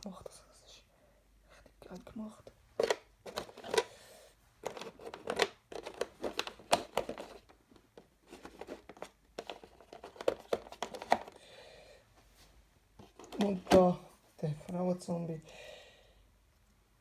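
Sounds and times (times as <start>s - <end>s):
plastic miniatures clicking and scraping: 4.6s - 7.6s.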